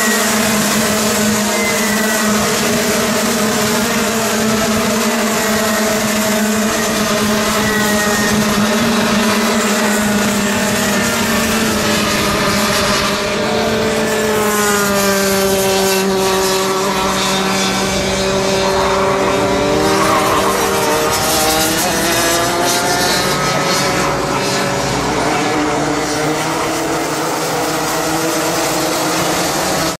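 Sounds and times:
kart engines at high revs: 0:00.0 - 0:30.0.

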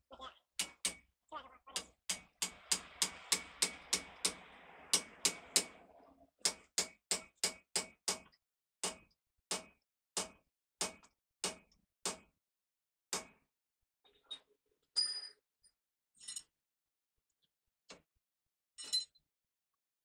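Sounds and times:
hammer striking steel drift: 0:01.8 - 0:05.8.

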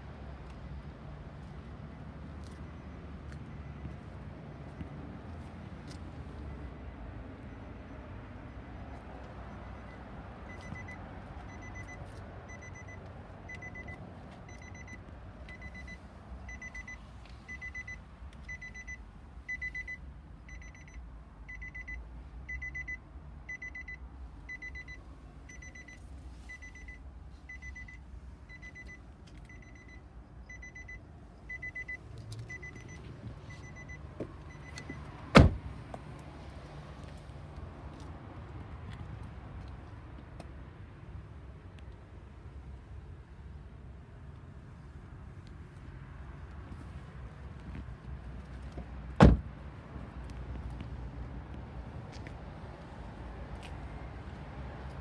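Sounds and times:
car warning chime beeping: 0:09.4 - 0:35.6
car door shutting: 0:34.2 - 0:35.7, 0:48.7 - 0:49.5.

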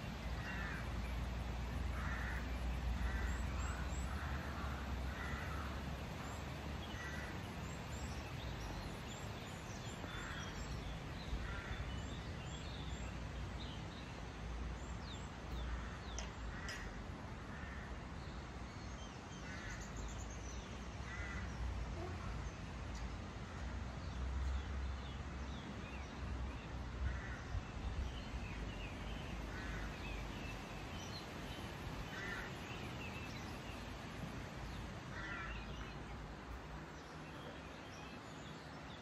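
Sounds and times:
crows cawing: 0:00.4 - 0:00.9, 0:01.9 - 0:05.8, 0:07.0 - 0:07.4, 0:11.4 - 0:11.8, 0:15.7 - 0:17.9, 0:21.1 - 0:21.5, 0:27.1 - 0:27.4, 0:32.1 - 0:32.5, 0:35.1 - 0:35.6.

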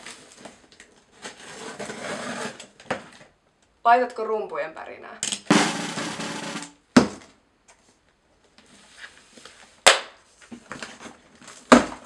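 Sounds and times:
cardboard rustling and scraping: 0:00.0 - 0:03.3.

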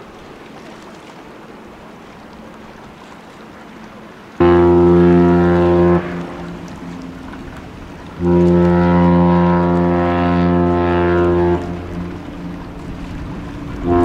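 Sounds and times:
deep ship horn blasts: 0:04.3 - 0:14.0.

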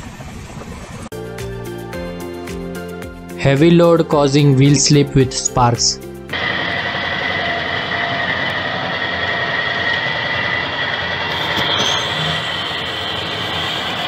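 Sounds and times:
high squeal: 0:06.3 - 0:14.0
locomotive wheels grinding on rail: 0:06.3 - 0:14.0.

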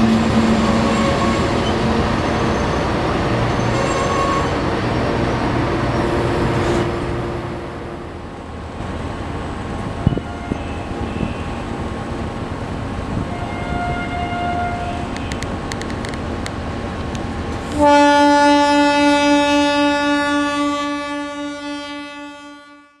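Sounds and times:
train rumbling: 0:00.0 - 0:22.8
train horn blast: 0:10.0 - 0:11.7, 0:13.2 - 0:15.4, 0:17.7 - 0:23.0.

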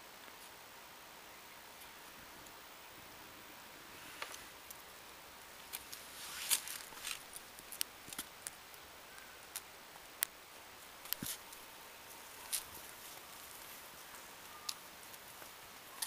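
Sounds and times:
rustling in grass: 0:03.5 - 0:08.6, 0:10.9 - 0:16.0.

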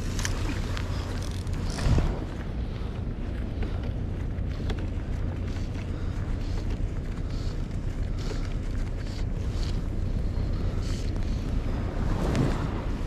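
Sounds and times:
wind buffeting microphone: 0:00.0 - 0:05.3, 0:09.8 - 0:13.0.

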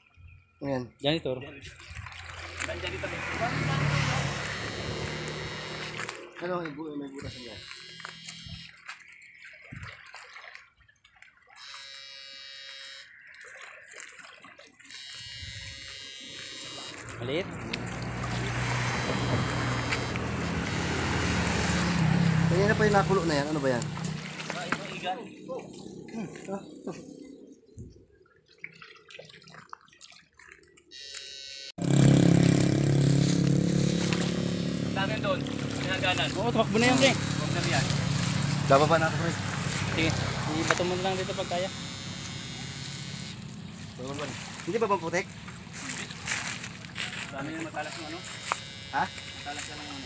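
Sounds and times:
splashing through shallow water: 0:01.4 - 0:27.5, 0:28.1 - 0:50.0
loud droning hum: 0:03.0 - 0:06.3, 0:15.4 - 0:23.6, 0:31.8 - 0:44.6
high-pitched electric buzz: 0:03.8 - 0:06.2, 0:18.4 - 0:22.5, 0:31.0 - 0:35.2, 0:39.9 - 0:43.5, 0:47.9 - 0:50.0.

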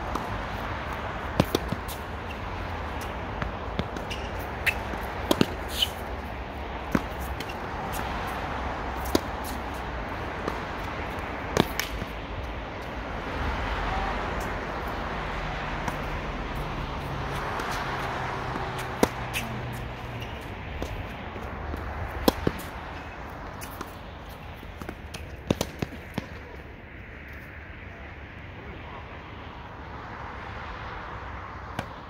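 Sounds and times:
tennis ball hit by rackets: 0:00.9 - 0:02.4, 0:03.0 - 0:06.1, 0:06.8 - 0:08.1, 0:09.0 - 0:12.2, 0:17.3 - 0:24.0, 0:24.8 - 0:26.4.

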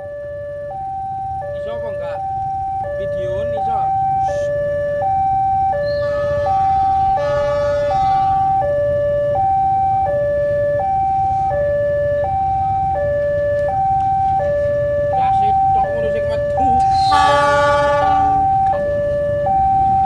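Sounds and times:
level crossing two-tone alarm: 0:00.0 - 0:20.0.

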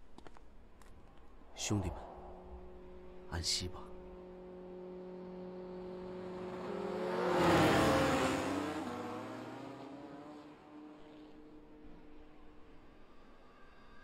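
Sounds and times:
motorcycle engine speeding past: 0:01.9 - 0:12.6.

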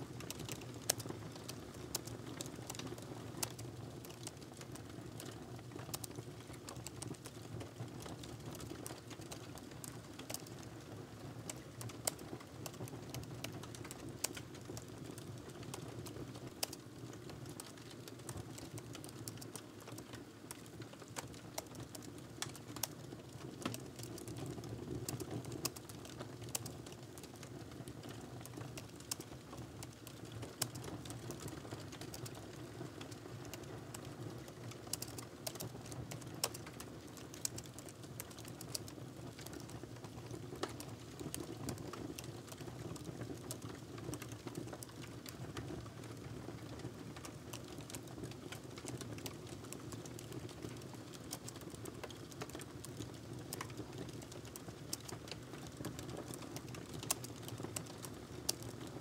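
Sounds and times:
laptop keyboard typing: 0:34.8 - 0:39.7.

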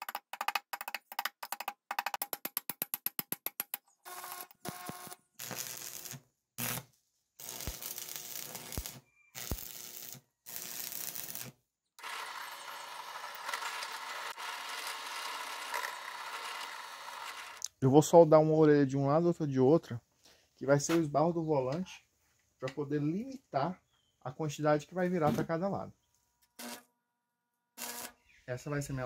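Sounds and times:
drill press running: 0:12.0 - 0:17.6.

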